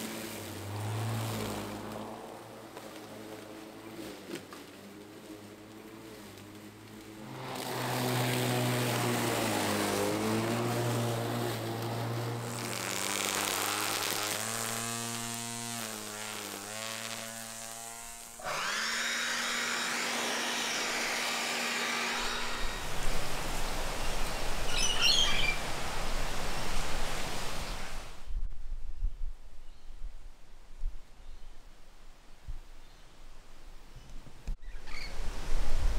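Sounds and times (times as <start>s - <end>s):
lawn mower motor whine: 0.0s - 23.7s
rough grass cutting noise: 0.0s - 26.4s
birds chirping: 24.0s - 25.7s.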